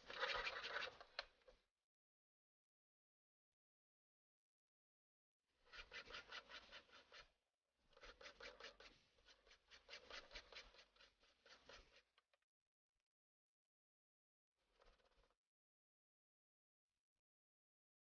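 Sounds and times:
file rasping on bone: 8.0s - 12.0s.

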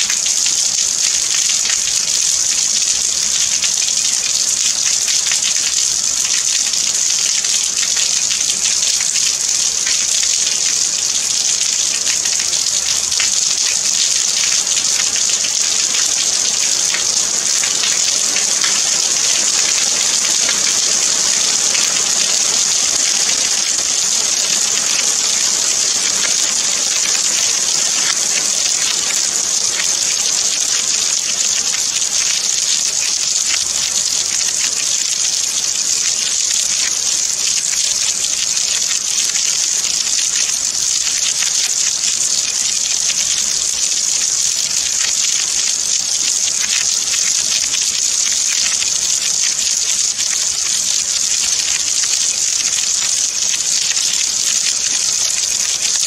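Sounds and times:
steady rain: 0.0s - 56.0s.

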